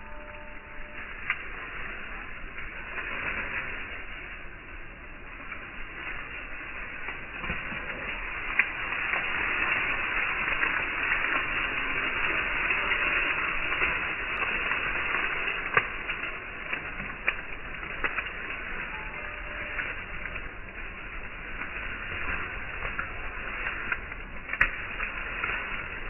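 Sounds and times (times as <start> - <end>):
cow chewing dry grass: 0.0 - 26.0
stalks snapping: 22.8 - 26.0.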